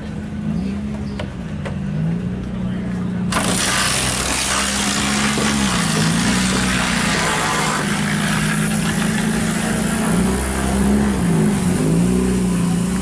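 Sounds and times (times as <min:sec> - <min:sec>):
engine running: 0:00.0 - 0:13.0
loud steady hiss: 0:03.3 - 0:13.0.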